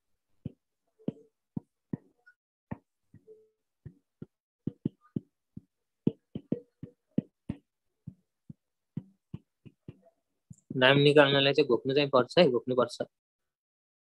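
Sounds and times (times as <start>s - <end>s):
stylus tapping on drawing tablet: 0.4s - 10.8s.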